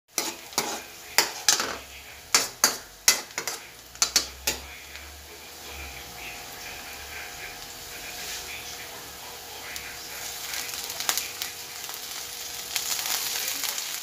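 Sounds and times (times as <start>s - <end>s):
metal spoon clanking in wok: 0.1s - 4.7s
faint sizzle: 0.1s - 14.0s.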